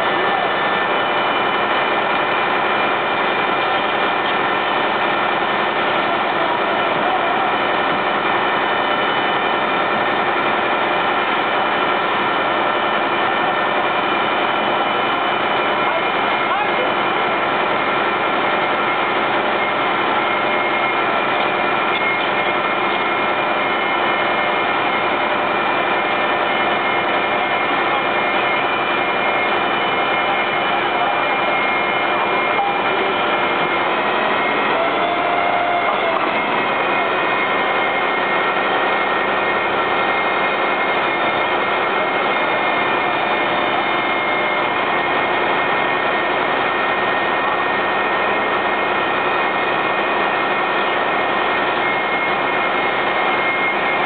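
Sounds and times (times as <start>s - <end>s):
constant engine whine: 0.0s - 54.0s
diesel engine running: 0.0s - 54.0s.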